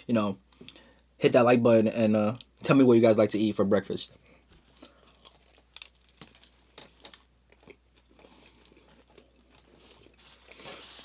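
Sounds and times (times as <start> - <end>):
faint chewing: 4.5 - 11.0.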